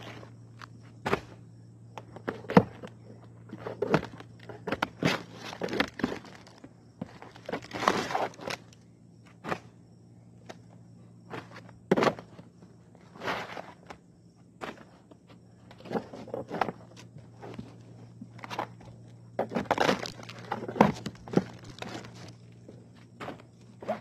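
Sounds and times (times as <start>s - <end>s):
faint low hum: 0.0s - 24.0s
shingles scraping and crackling: 3.5s - 8.8s, 15.7s - 22.6s.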